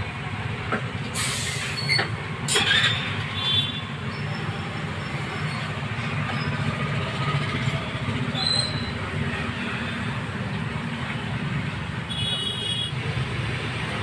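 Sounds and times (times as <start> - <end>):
short high squeaks: 1.4 - 3.1, 8.3 - 9.0.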